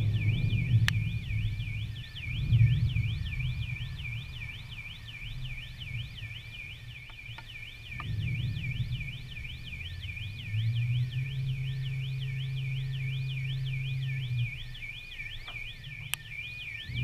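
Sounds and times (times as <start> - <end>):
electronic siren wailing: 0.0 - 17.0
low rumble: 0.0 - 17.0.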